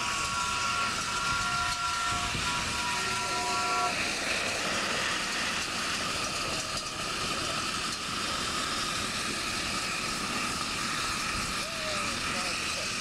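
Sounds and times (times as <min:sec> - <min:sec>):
steam whistle chord: 0:00.0 - 0:05.6
steady steam hiss: 0:00.0 - 0:13.0.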